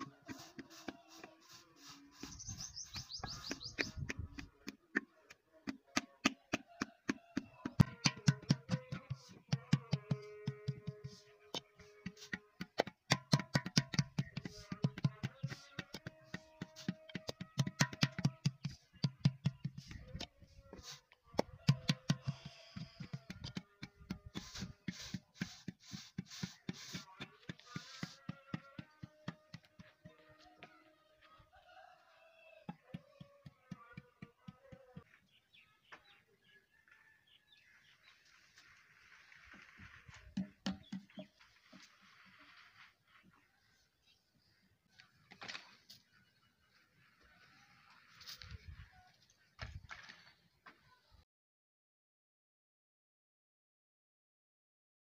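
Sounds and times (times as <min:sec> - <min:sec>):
wooden paddle slapping clay: 0:00.0 - 0:30.2.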